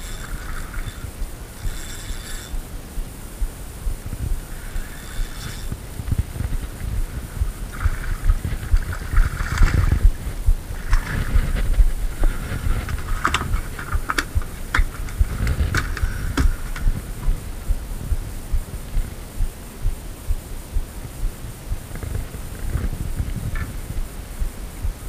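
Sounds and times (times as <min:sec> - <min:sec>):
wind rumble on microphone: 0:00.0 - 0:25.0.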